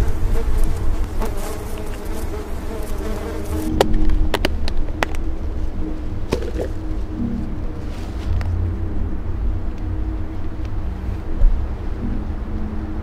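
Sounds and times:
low wavering buzz: 0:00.0 - 0:13.0
steady low rumble: 0:00.0 - 0:13.0.

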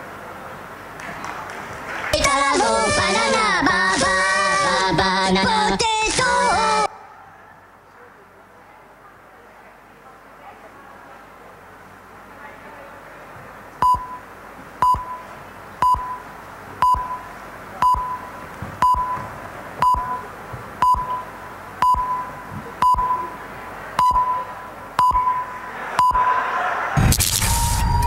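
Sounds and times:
short high countdown beeps: 0:13.8 - 0:19.2, 0:19.8 - 0:23.4, 0:24.0 - 0:26.3
loud rush of noise: 0:25.5 - 0:28.0.

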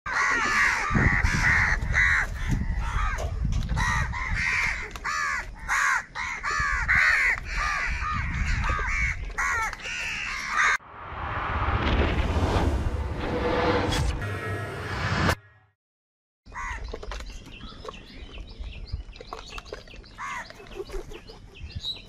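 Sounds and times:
crows cawing: 0:00.1 - 0:03.2, 0:03.8 - 0:10.8, 0:16.5 - 0:16.8
low rumble: 0:10.8 - 0:15.4
rising whoosh: 0:10.8 - 0:15.4.

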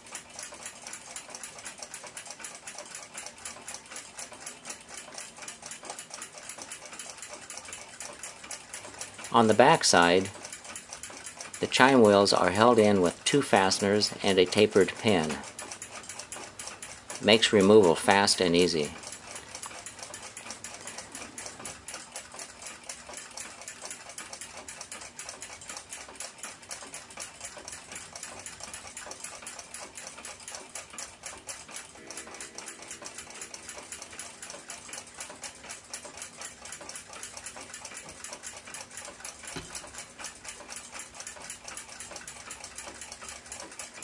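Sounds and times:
tweezers clicking on metal parts: 0:39.5 - 0:40.0.

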